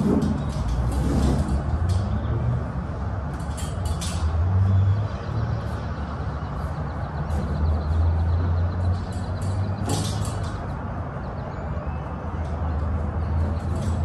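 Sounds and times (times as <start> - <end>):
metal strap hardware rattling: 0.0 - 2.3, 3.3 - 4.5, 8.8 - 10.8, 13.4 - 14.0.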